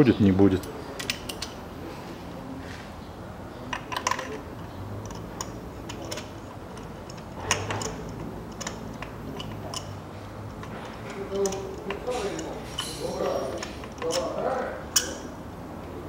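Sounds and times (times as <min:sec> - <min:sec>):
light metal clicks and clinks: 0:03.7 - 0:15.3.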